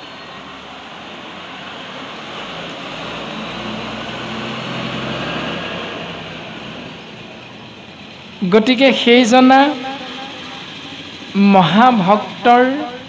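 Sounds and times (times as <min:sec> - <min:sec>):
passing vehicle engine: 0:00.0 - 0:13.0.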